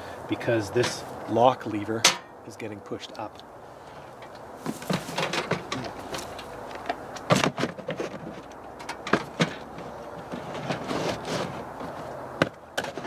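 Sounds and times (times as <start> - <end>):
camp stove handling knocks: 2.0 - 2.3, 4.6 - 8.2, 8.8 - 10.8.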